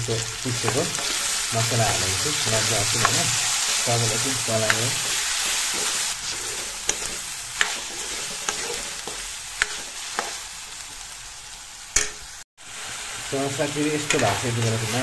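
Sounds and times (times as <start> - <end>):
food sizzling in oil: 0.0 - 15.0
steel ladle scraping a pan: 0.6 - 10.4.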